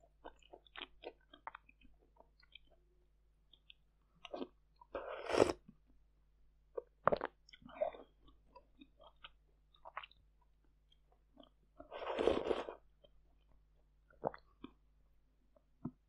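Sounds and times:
lip smacks and chewing: 0:00.2 - 0:02.8
loud slurp: 0:12.0 - 0:12.8.

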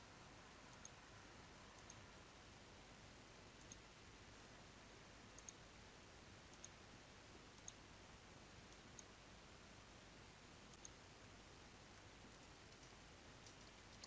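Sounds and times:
low steady hiss: 0:00.0 - 0:14.0
computer mouse clicks: 0:00.7 - 0:01.0, 0:01.7 - 0:02.0, 0:03.6 - 0:03.9, 0:05.4 - 0:05.6, 0:06.5 - 0:06.8, 0:07.5 - 0:07.8, 0:08.7 - 0:09.2, 0:10.7 - 0:11.0, 0:12.2 - 0:14.0.

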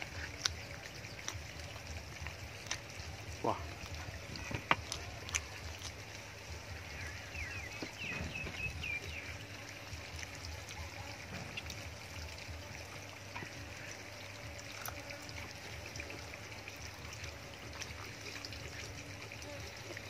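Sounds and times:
meat tearing: 0:00.0 - 0:06.3, 0:14.6 - 0:15.1
wet chewing: 0:00.0 - 0:20.0.

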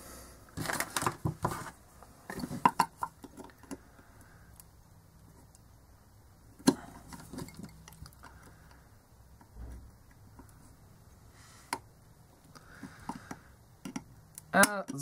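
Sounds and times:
plastic clicks and knocks: 0:12.8 - 0:15.0.

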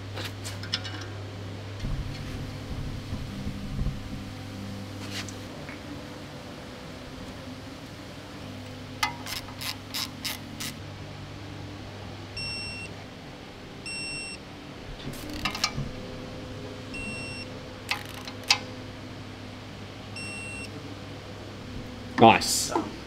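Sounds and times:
torque wrench ratchet clicks: 0:09.0 - 0:10.8, 0:17.9 - 0:18.6.

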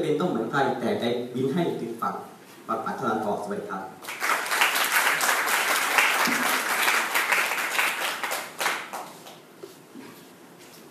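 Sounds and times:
small audience applauding: 0:04.0 - 0:09.4.

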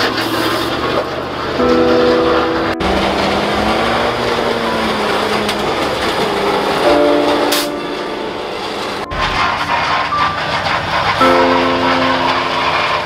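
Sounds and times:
engine noise: 0:00.0 - 0:13.0
truck frames scraping pavement: 0:02.8 - 0:13.0.

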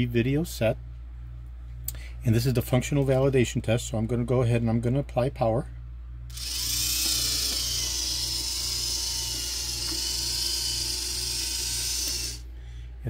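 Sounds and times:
electric motor whine: 0:06.3 - 0:12.5.

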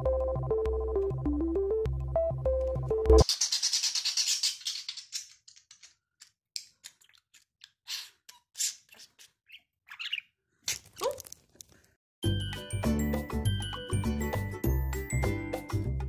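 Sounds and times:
budgerigar chirping: 0:09.5 - 0:10.3.

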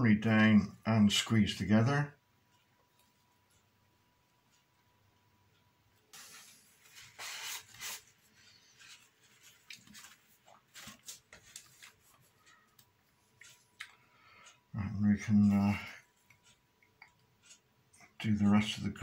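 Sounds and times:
hands rubbing wooden parts: 0:06.2 - 0:12.8
light clicks and brushes: 0:08.6 - 0:14.0.

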